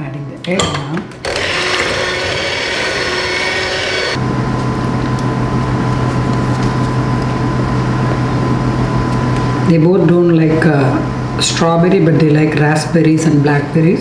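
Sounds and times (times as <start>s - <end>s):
electric stand mixer running: 1.2s - 4.4s.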